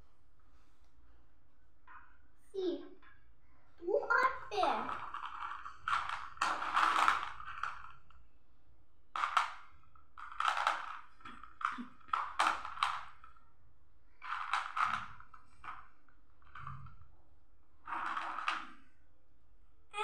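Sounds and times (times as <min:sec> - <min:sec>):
plastic balls rattling: 0:03.8 - 0:08.4, 0:09.1 - 0:19.3.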